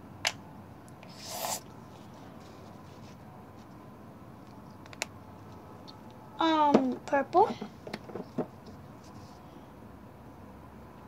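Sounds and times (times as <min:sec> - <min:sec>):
low room noise: 0:00.0 - 0:11.0
brief hissing rustle: 0:01.0 - 0:01.6.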